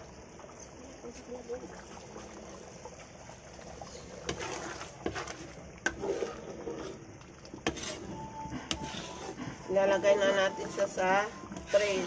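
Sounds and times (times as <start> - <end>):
steaming pot hissing: 1.0 - 12.0.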